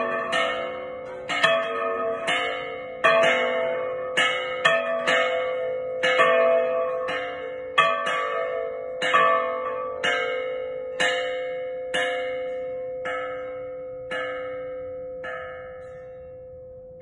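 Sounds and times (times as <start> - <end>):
church bell tolling: 0.0 - 17.0.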